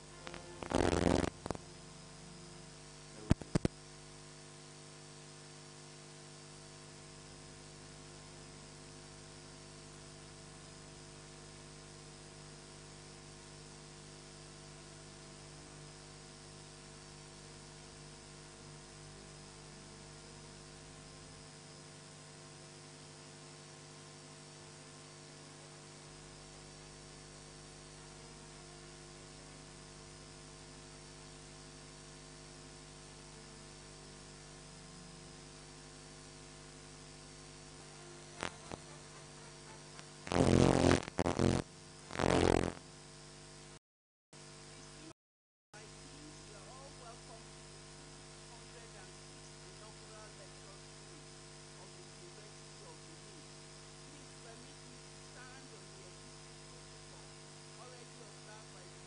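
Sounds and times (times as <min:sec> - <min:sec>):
electrical hum and hiss: 0:00.0 - 0:43.8, 0:45.8 - 0:59.0
loud rough noise bursts: 0:00.1 - 0:01.7, 0:38.0 - 0:42.8.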